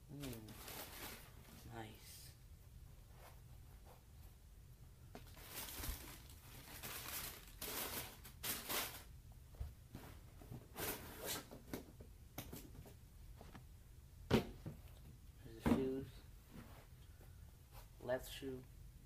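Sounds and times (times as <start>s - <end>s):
paper rustling: 5.2s - 9.1s.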